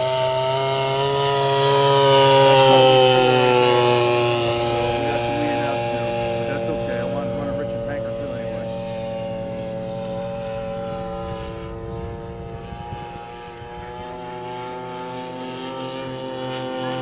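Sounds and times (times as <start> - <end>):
model plane propeller drone: 0.0 - 17.0.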